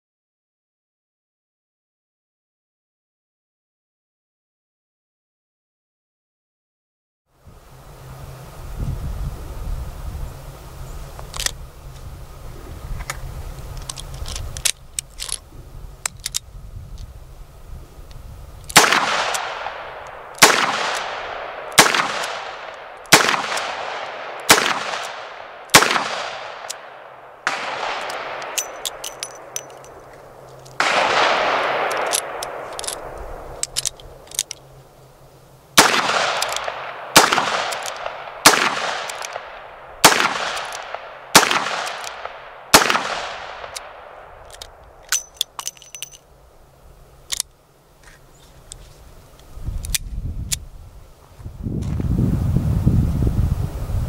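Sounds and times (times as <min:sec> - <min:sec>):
metallic clinks of spent cases: 0:28.4 - 0:30.8, 0:44.4 - 0:46.3.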